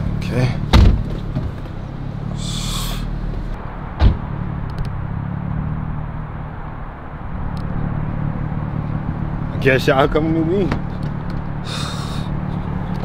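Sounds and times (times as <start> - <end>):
car engine idling: 0.0 - 5.1, 6.2 - 13.0
sharp thump: 0.7 - 1.6, 4.0 - 4.3.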